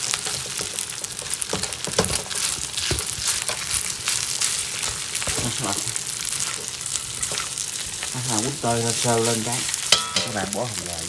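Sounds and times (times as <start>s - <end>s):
rice sizzling in wok: 0.0s - 11.0s
metal spatula scraping wok: 6.4s - 10.6s.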